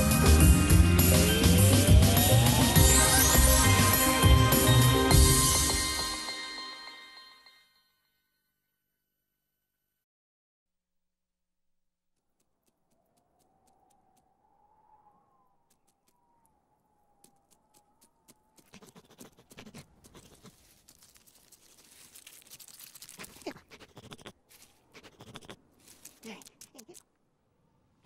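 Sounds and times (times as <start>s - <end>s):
crunching in snow: 17.2s - 27.0s.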